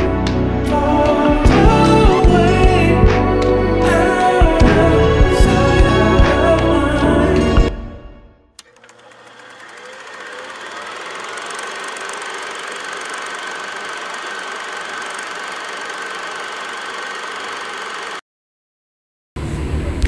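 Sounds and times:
music: 0.0 - 8.6
film projector whirring: 8.6 - 18.2.

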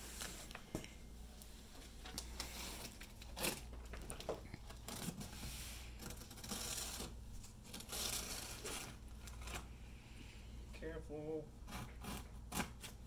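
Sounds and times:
packing tape being cut and torn: 2.4 - 3.7, 4.8 - 5.4, 6.0 - 9.6, 11.7 - 13.0.

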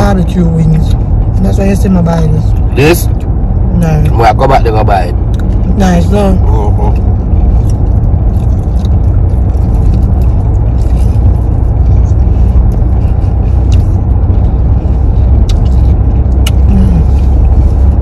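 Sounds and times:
road and engine rumble in car: 0.0 - 18.0.

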